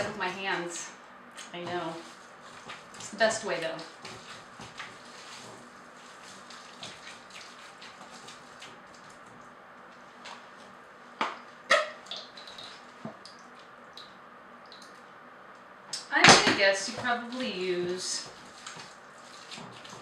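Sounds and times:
hands squishing raw meat: 1.4s - 10.4s, 18.2s - 20.0s.

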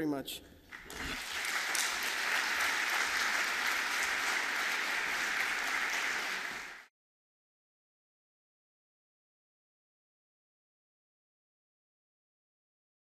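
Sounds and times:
audience applauding: 0.7s - 6.9s.

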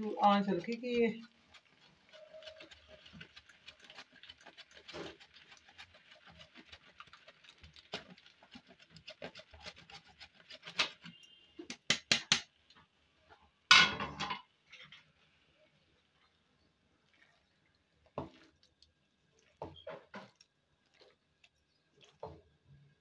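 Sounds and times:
cheese grating on metal grater: 0.0s - 11.4s.

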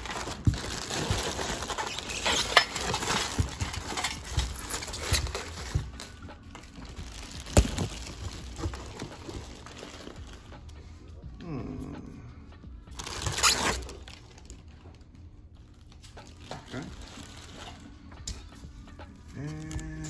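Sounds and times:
plastic wrapping crinkling: 0.0s - 10.8s, 12.9s - 18.0s.

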